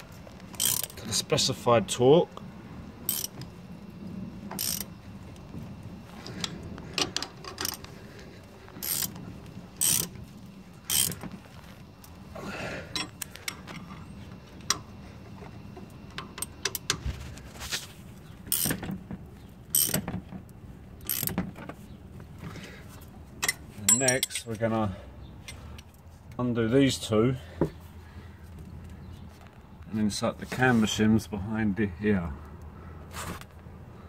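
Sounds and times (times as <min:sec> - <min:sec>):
socket wrench ratchet clicking: 0:00.6 - 0:01.0, 0:03.1 - 0:03.4, 0:04.6 - 0:04.9, 0:07.0 - 0:07.8, 0:08.8 - 0:09.2, 0:09.8 - 0:10.1, 0:10.9 - 0:11.2, 0:19.7 - 0:20.0, 0:21.0 - 0:21.4.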